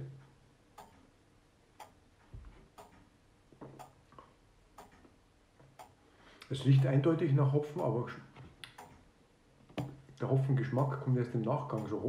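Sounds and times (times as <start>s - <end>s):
faint clock ticking: 0.0s - 12.0s
soft low thump: 2.3s - 2.6s.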